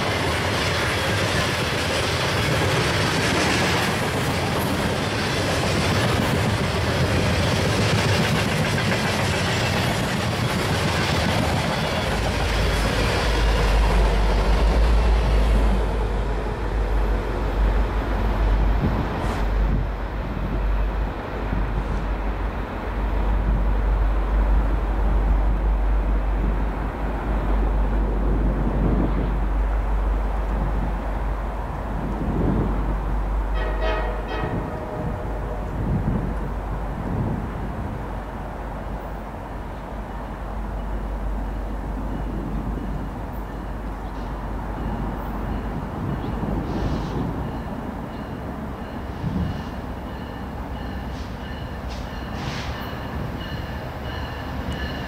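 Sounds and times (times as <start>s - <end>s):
train wheels rattling over rails: 0.0s - 19.9s, 40.8s - 55.0s.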